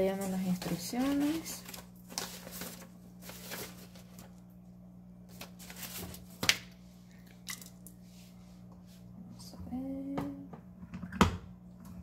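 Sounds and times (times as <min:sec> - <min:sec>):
paper sheets rustling: 0:00.0 - 0:04.4, 0:05.3 - 0:06.6
steady low hum: 0:00.0 - 0:12.0.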